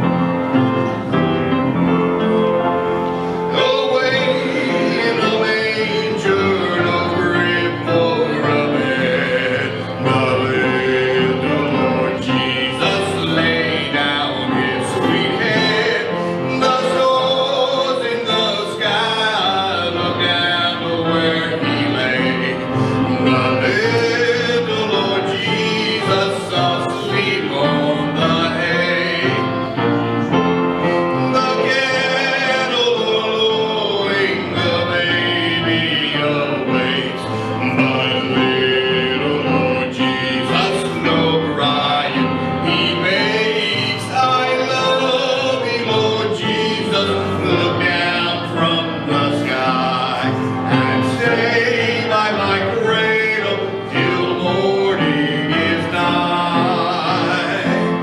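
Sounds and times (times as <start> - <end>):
voices singing a gospel hymn: 0.0 - 58.0.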